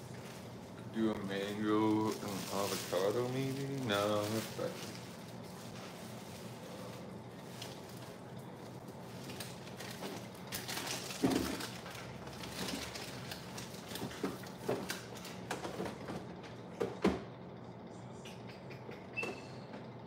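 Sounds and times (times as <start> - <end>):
plastic bag rustling: 0.0 - 15.3.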